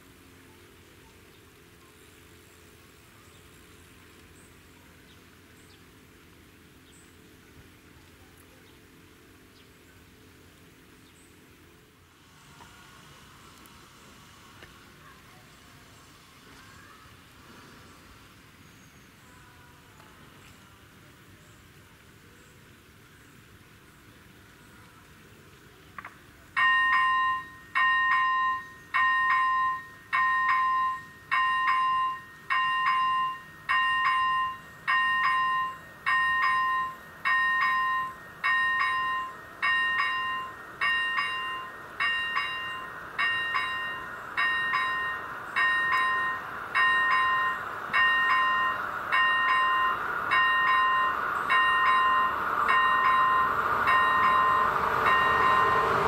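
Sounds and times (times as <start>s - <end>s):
train rumbling: 26.0s - 56.0s
level-crossing warning bell dinging: 26.5s - 56.0s.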